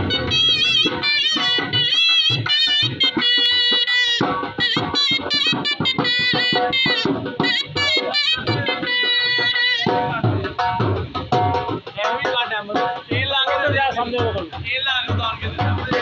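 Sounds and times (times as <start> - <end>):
reedy wind instrument melody: 0.0 - 10.9
dhol drum beats: 0.0 - 16.0.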